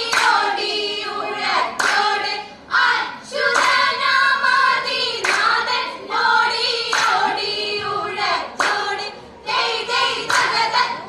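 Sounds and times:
hand claps: 0:00.0 - 0:00.5, 0:01.8 - 0:02.2, 0:03.5 - 0:03.9, 0:05.2 - 0:05.6, 0:06.9 - 0:07.4, 0:08.6 - 0:08.9, 0:10.2 - 0:10.6
women singing in unison: 0:00.0 - 0:11.0.

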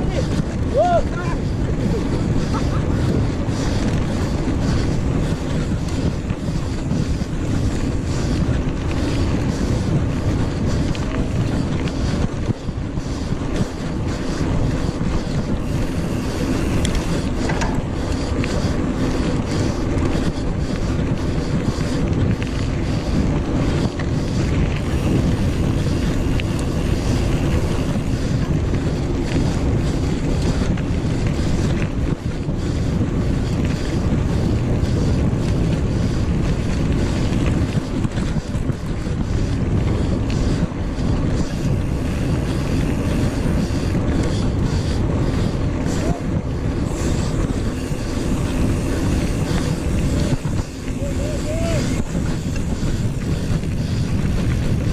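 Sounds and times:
bike tyres rolling on dirt: 0:00.0 - 0:54.9
wind buffeting microphone: 0:00.0 - 0:54.9
faint ticks: 0:15.3 - 0:23.1.

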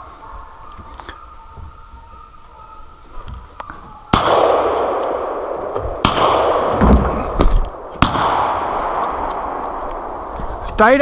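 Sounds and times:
gunshots with rolling echo: 0:04.1 - 0:11.0.

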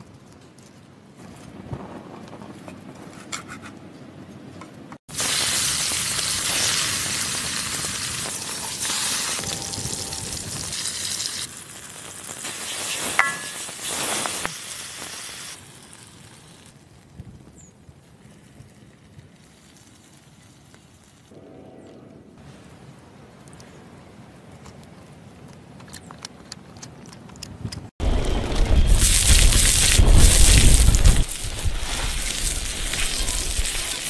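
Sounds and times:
food sizzling in a pan: 0:05.1 - 0:16.7, 0:28.7 - 0:34.0
sharp metallic clink: 0:13.2 - 0:13.7.

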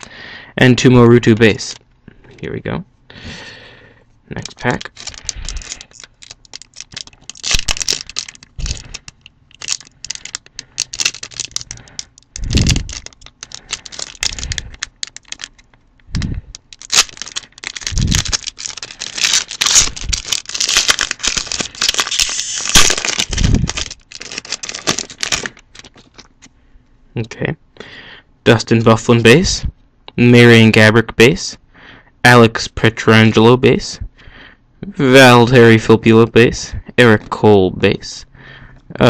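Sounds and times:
foil wrapper tearing and crinkling: 0:04.4 - 0:26.4.

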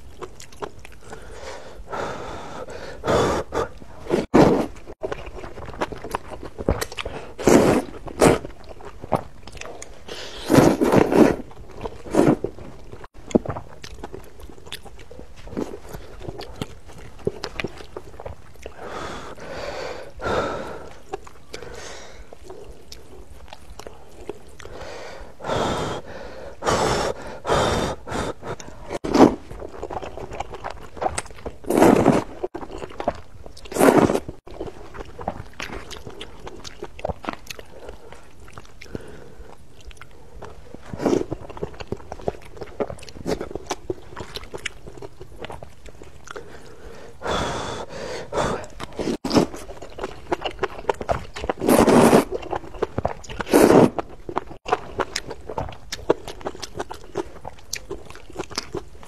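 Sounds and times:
wet chewing: 0:00.0 - 0:01.5, 0:02.6 - 0:24.9, 0:26.6 - 0:59.0
noodles being slurped: 0:48.6 - 0:57.4.

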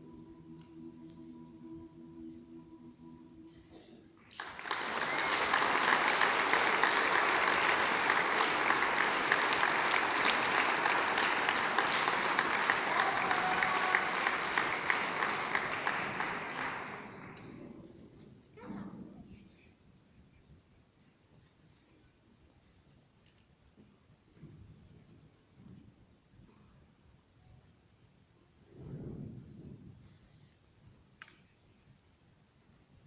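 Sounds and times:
audience clapping: 0:04.2 - 0:18.0.

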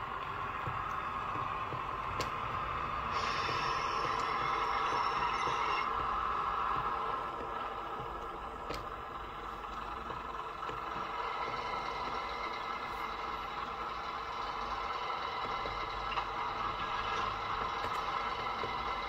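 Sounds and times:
diesel engine idling from small speaker: 0:05.8 - 0:19.0.

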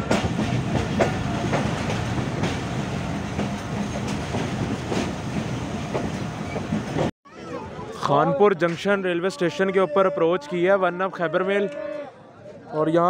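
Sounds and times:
train running rumble: 0:00.0 - 0:07.1
train wheel clacks: 0:00.0 - 0:07.1.

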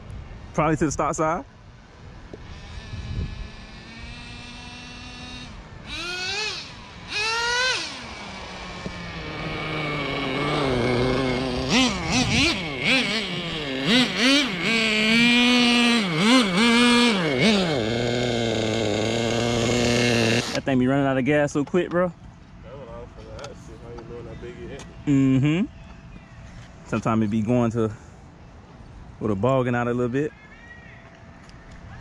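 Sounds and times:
small engine revving: 0:02.3 - 0:20.8.

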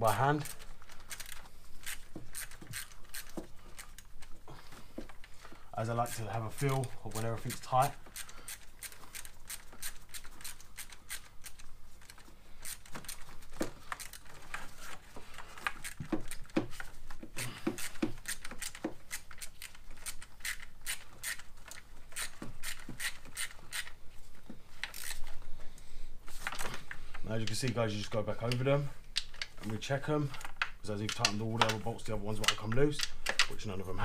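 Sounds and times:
hand ratchet clicking: 0:00.0 - 0:04.4, 0:05.9 - 0:14.6, 0:15.4 - 0:24.0, 0:24.8 - 0:25.3.

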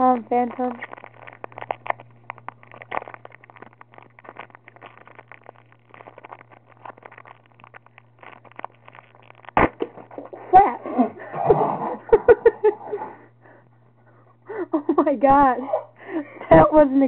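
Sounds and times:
foil wrapper crinkling: 0:00.0 - 0:10.8
low hum: 0:00.0 - 0:17.0.

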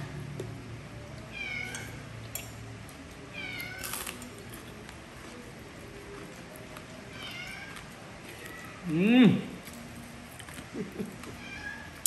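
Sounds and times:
cat meowing: 0:01.3 - 0:02.0.

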